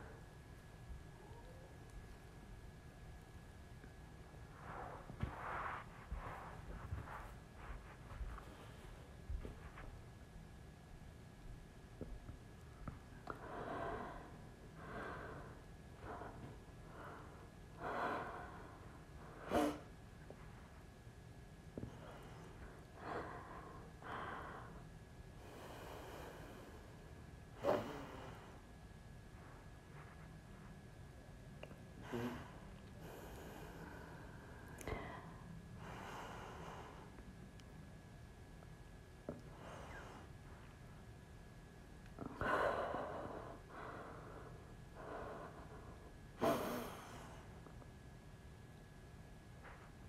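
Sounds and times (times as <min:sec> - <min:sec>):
woman breathing: 0:04.4 - 0:09.8, 0:12.8 - 0:20.4, 0:21.8 - 0:28.8, 0:31.6 - 0:37.2, 0:39.3 - 0:40.7, 0:42.2 - 0:47.8.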